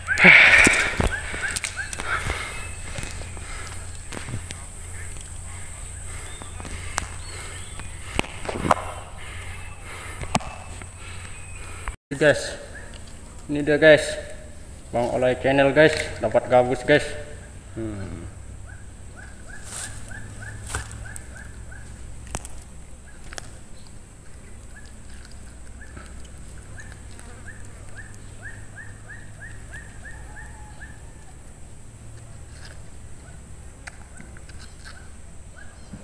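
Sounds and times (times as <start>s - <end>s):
animal chirping: 0.0s - 11.8s, 18.6s - 22.0s, 24.4s - 31.2s
steady low rumble: 0.0s - 12.0s.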